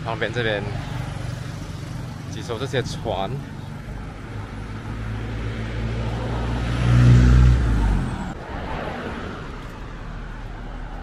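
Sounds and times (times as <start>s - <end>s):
car driving past: 5.0s - 10.7s.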